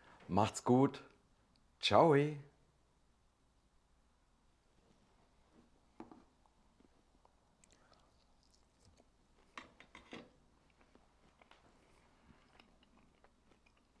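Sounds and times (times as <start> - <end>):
small handling noises: 4.8 - 14.0.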